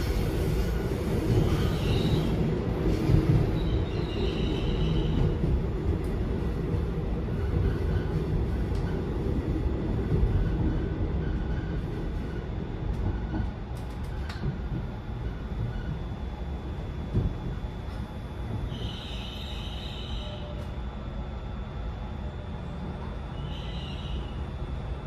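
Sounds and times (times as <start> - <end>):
train wheels rumbling: 0.0 - 20.8
faint high wheel squeals: 18.6 - 20.6, 23.2 - 24.5.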